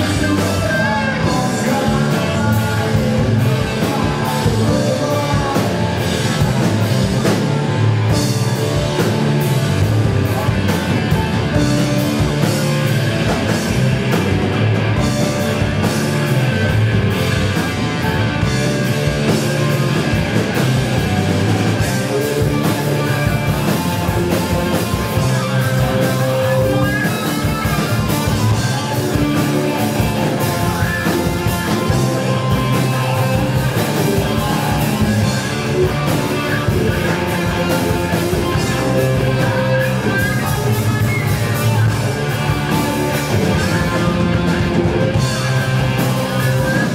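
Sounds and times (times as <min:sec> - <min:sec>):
live rock band playing: 0:00.0 - 0:46.9.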